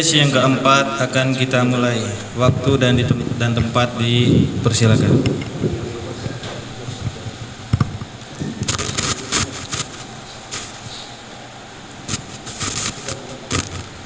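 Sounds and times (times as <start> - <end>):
hissy rustling of microphones: 1.5 - 14.0
microphone handling thump: 2.4 - 10.0.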